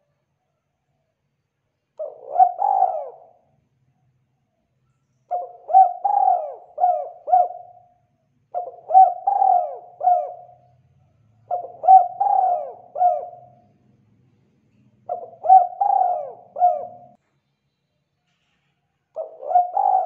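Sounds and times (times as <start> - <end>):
dove cooing: 2.0 - 3.5, 5.3 - 10.8, 11.4 - 13.8, 15.0 - 17.2, 19.2 - 20.0.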